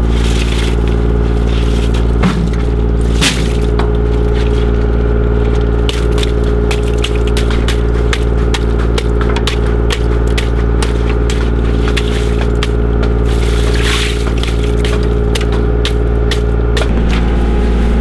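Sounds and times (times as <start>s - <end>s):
engine idling: 0.0s - 18.0s
stick beating mesh bags: 5.9s - 16.9s.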